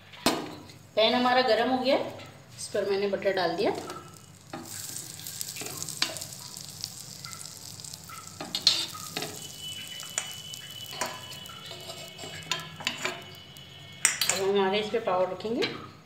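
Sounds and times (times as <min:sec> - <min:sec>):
butter sizzling in a hot pan: 0:03.6 - 0:14.4
metal spatula scraping a pan: 0:03.7 - 0:14.6.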